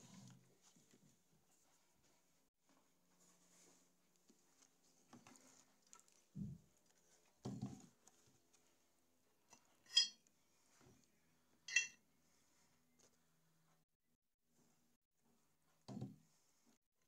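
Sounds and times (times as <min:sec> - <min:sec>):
metallic clinks with ringing tone: 0:11.7 - 0:12.0.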